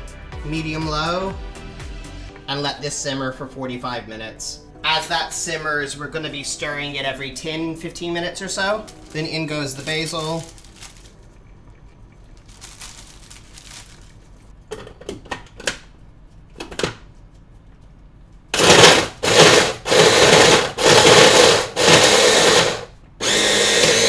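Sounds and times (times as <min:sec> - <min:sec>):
food processor motor pulsing: 0:18.6 - 0:24.0.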